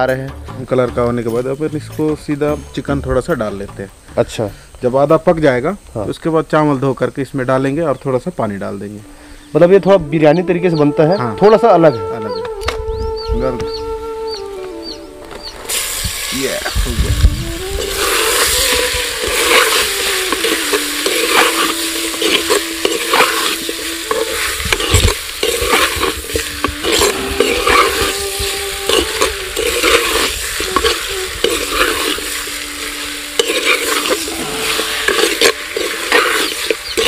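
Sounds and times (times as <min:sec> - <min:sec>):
chicken sizzling in a pot: 0:15.4 - 0:37.0
metal spoon scraping a pot: 0:17.8 - 0:28.2, 0:28.9 - 0:32.4, 0:33.3 - 0:37.0.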